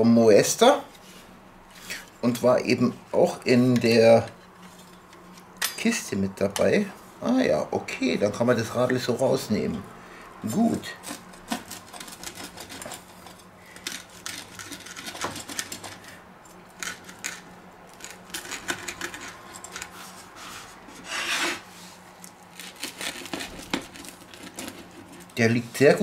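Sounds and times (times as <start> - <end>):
pizza cutter scraping on wooden board: 10.9 - 16.2, 18.0 - 25.3.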